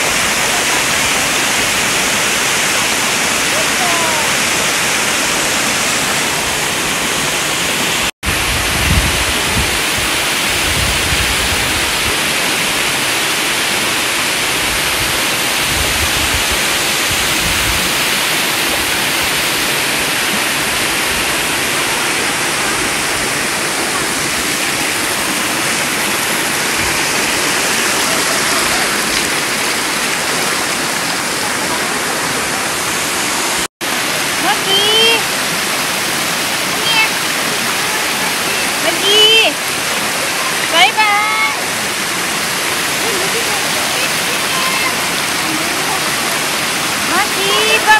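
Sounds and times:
waterfall rushing over rocks: 0:00.0 - 0:47.9.

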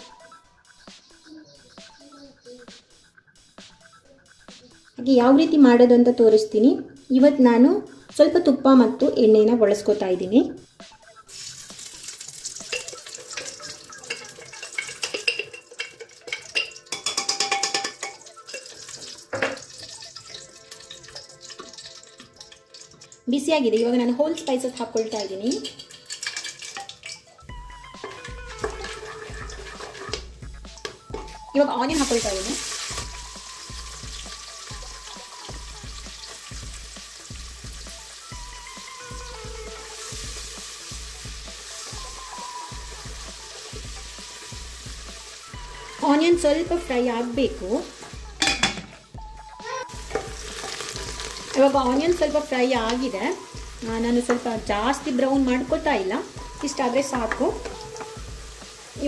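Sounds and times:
onions sizzling and popping: 0:11.2 - 0:59.0
ghee melting in hot pan: 0:11.3 - 0:31.0, 0:31.9 - 0:48.6, 0:49.9 - 0:59.0
spatula scraping a pot: 0:28.0 - 0:30.3, 0:50.0 - 0:54.5.

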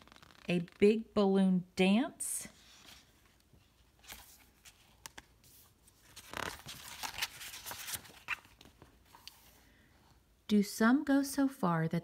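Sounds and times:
paper page turning: 0:00.0 - 0:00.6, 0:02.6 - 0:09.5.

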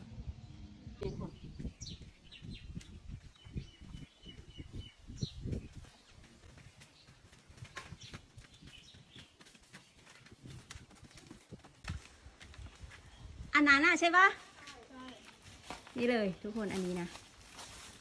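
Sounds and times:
birds chirping: 0:00.4 - 0:11.6.

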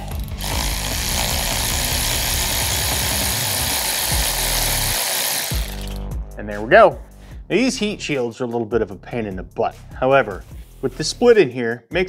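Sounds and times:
electric ratchet running: 0:00.0 - 0:06.1.

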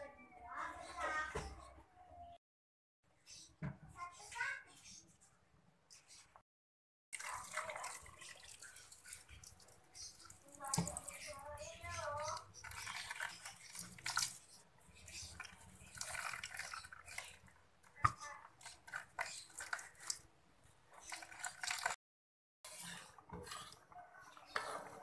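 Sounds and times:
liquid pouring and dripping into wok: 0:07.2 - 0:11.2
liquid simmering: 0:07.2 - 0:20.2.

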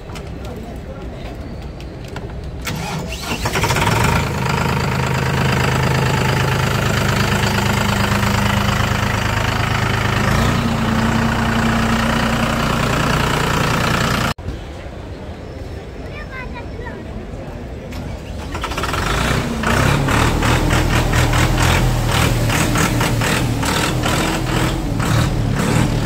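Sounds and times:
starter motor cranking: 0:02.6 - 0:14.4, 0:18.2 - 0:26.0
diesel engine idling: 0:02.8 - 0:14.4, 0:18.2 - 0:26.0.

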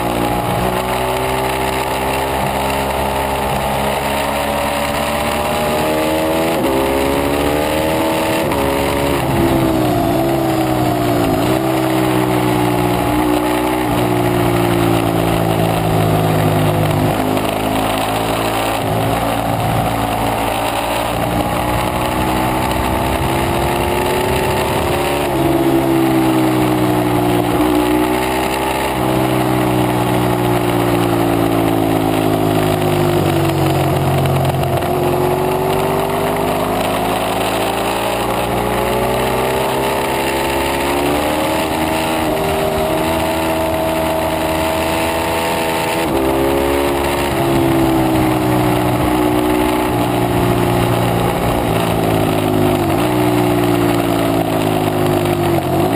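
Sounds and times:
motorcycle engine revving: 0:00.0 - 0:55.9
wind noise: 0:05.6 - 0:29.1.

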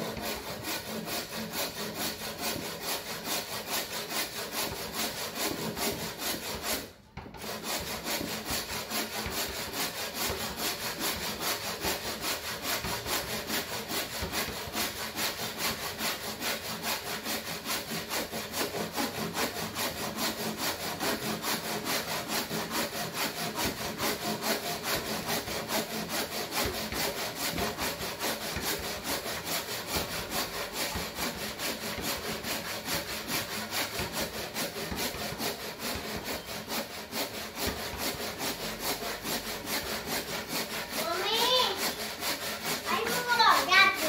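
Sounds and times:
hand saw cutting wood: 0:00.0 - 0:44.0.

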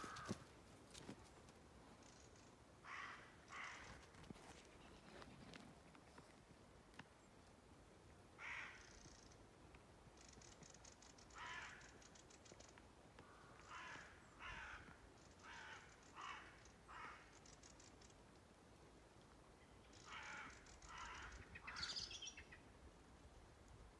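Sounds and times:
crows cawing: 0:00.0 - 0:00.5, 0:02.8 - 0:04.0, 0:08.4 - 0:09.1, 0:11.3 - 0:12.0, 0:13.2 - 0:17.4, 0:20.0 - 0:22.0.

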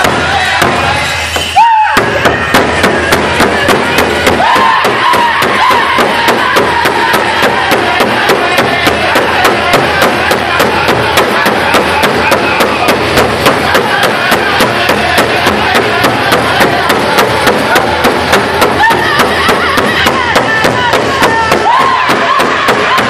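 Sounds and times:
large drum fast beat: 0:00.0 - 0:23.0
men singing in unison: 0:05.7 - 0:21.3.

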